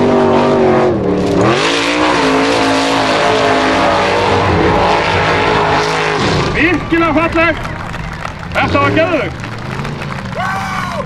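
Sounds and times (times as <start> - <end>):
buggy engine revving hard: 0.0 - 11.0.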